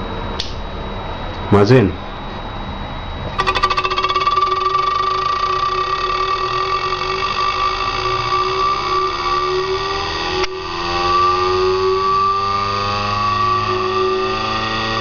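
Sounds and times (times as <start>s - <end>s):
pulse motor clicking and whining: 3.4s - 15.0s.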